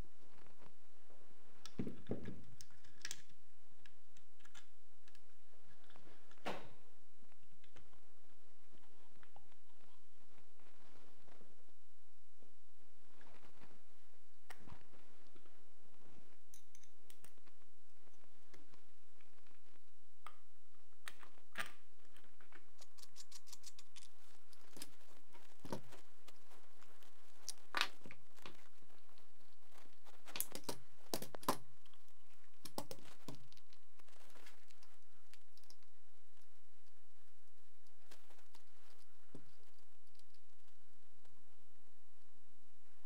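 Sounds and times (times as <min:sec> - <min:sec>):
gun parts and tools clicking: 0:30.3 - 0:31.6.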